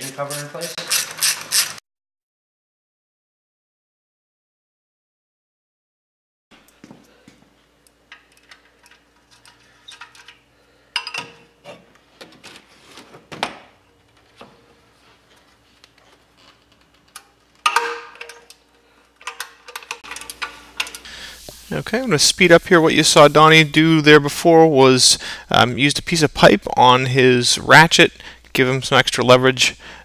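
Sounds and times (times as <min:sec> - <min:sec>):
ratchet clicking: 0:00.3 - 0:01.8.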